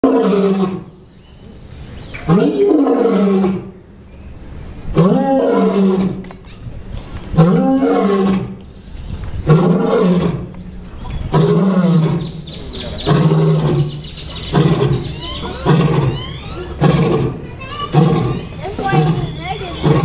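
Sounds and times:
lion roaring: 0:00.0 - 0:00.9, 0:02.2 - 0:03.8, 0:04.9 - 0:06.2, 0:07.3 - 0:08.6, 0:09.4 - 0:10.6, 0:11.2 - 0:20.0.

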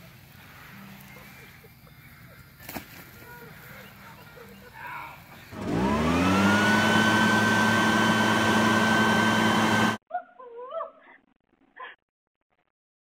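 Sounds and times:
leaf blower running: 0:05.4 - 0:10.0.

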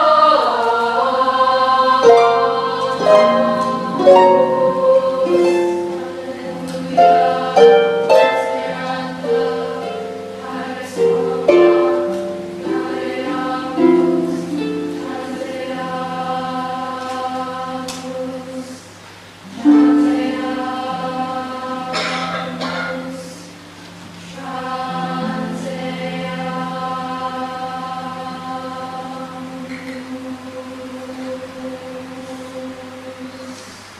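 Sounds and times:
girls' choir singing: 0:00.0 - 0:33.9
harp plucked notes: 0:02.0 - 0:15.7, 0:19.5 - 0:21.4.

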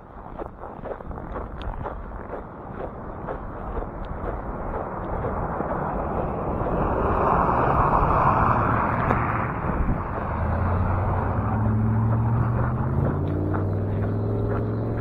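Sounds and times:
low steady engine hum: 0:00.0 - 0:15.0
motor vehicle passing: 0:00.0 - 0:15.0.

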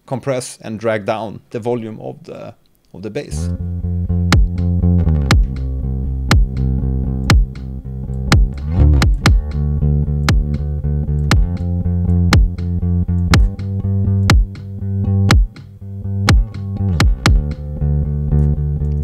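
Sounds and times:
bass line: 0:03.3 - 0:19.0
kick drum: 0:04.3 - 0:04.6, 0:05.3 - 0:05.6, 0:06.3 - 0:06.6, 0:07.3 - 0:07.6, 0:08.3 - 0:09.6, 0:10.3 - 0:10.6, 0:11.3 - 0:11.6, 0:12.3 - 0:12.6, 0:13.3 - 0:13.7, 0:14.3 - 0:14.7, 0:15.3 - 0:15.6, 0:16.3 - 0:17.6.

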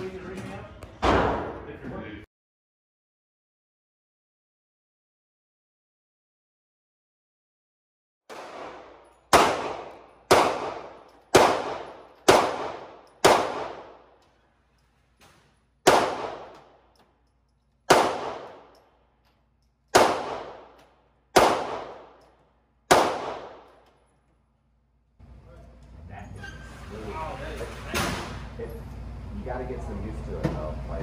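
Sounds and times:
handgun shots echoing: 0:08.3 - 0:14.1, 0:15.8 - 0:16.8, 0:17.8 - 0:18.8, 0:19.9 - 0:22.3, 0:22.9 - 0:23.8.

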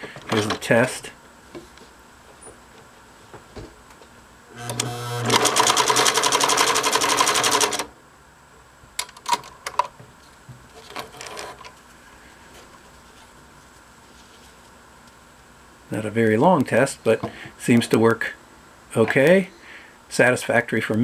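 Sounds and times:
sewing machine stitching: 0:04.6 - 0:07.9.

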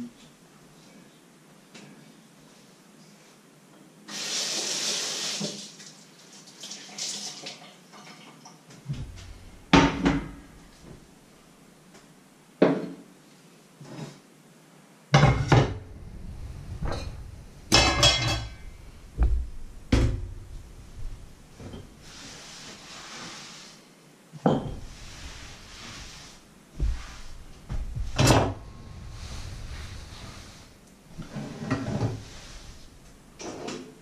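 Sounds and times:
water running: 0:04.1 - 0:11.1, 0:15.5 - 0:23.2.

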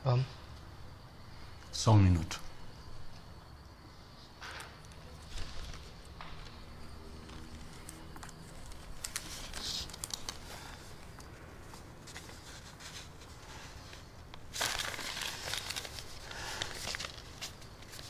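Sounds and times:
rustling: 0:04.6 - 0:18.0.

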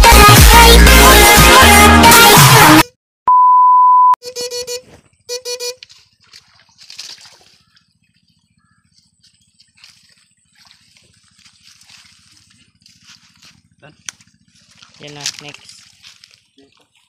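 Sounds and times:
dance music: 0:00.0 - 0:02.9
electronic beep: 0:03.3 - 0:04.2
faint water splashing: 0:05.9 - 0:13.8.

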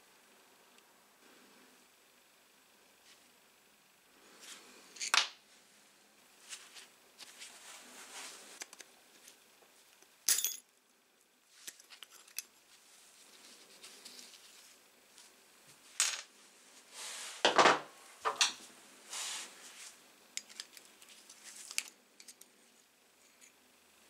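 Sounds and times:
metal tools clinking and scraping: 0:10.3 - 0:10.6.

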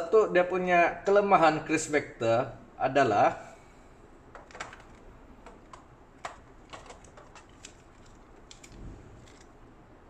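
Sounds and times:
small objects clicking and tapping: 0:04.3 - 0:09.5.

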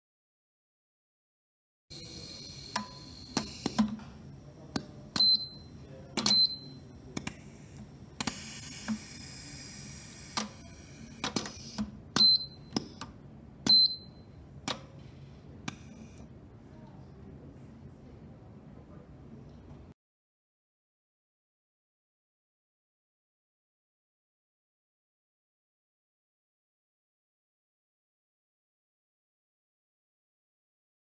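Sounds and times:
compressed air hissing: 0:01.9 - 0:04.0, 0:07.2 - 0:11.8
pneumatic clamps clicking: 0:02.0 - 0:04.1, 0:07.2 - 0:13.1.

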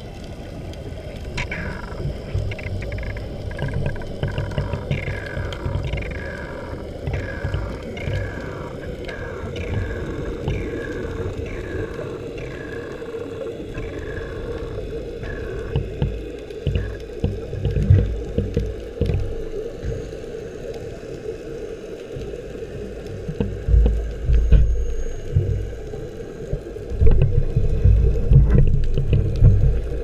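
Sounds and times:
underwater hum: 0:00.0 - 0:30.0
low rumbling bursts: 0:23.4 - 0:30.0.

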